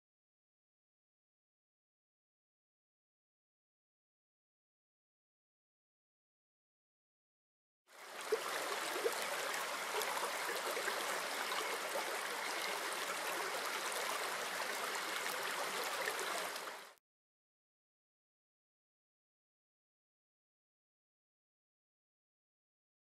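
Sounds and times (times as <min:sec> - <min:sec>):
stream water flowing: 0:07.9 - 0:17.0.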